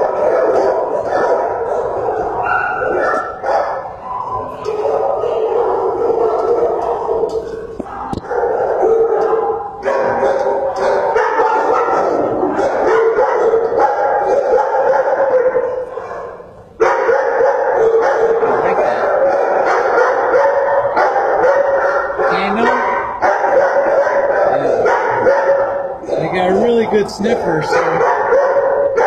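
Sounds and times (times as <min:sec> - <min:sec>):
many dogs barking: 0:00.0 - 0:29.0.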